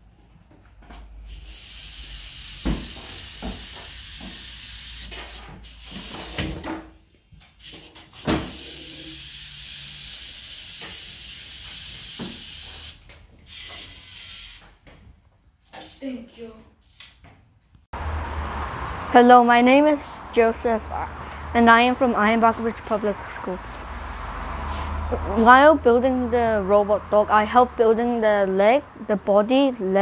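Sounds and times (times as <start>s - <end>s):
small gear motors whirring: 1.3s - 6.2s, 7.6s - 14.8s.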